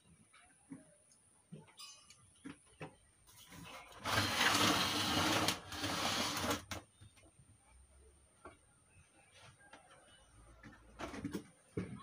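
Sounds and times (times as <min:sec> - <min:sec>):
plastic cabinet scraping on wood: 0:03.9 - 0:06.8.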